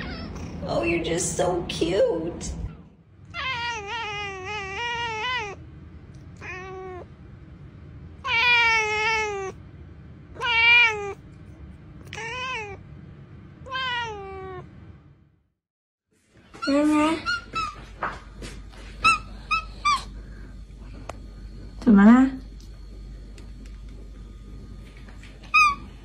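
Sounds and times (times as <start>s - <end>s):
cat meowing: 0.0s - 0.6s, 3.3s - 5.6s, 6.4s - 7.1s, 8.2s - 9.6s, 10.4s - 11.2s, 12.0s - 12.8s, 13.6s - 14.7s.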